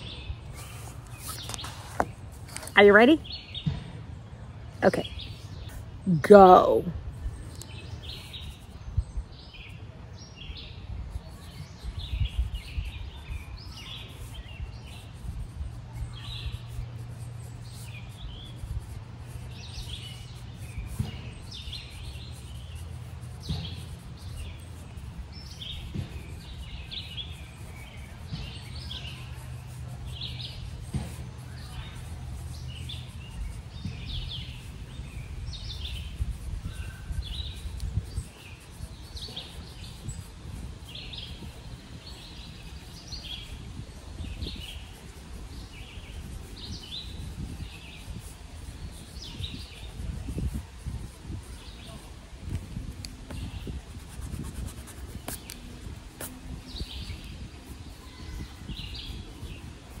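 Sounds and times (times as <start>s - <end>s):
songbirds chirping: 0.0s - 60.0s.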